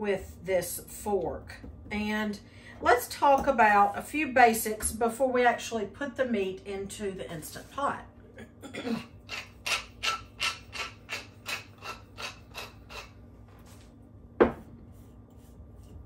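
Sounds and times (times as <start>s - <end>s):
pepper mill grinding: 9.3s - 13.1s.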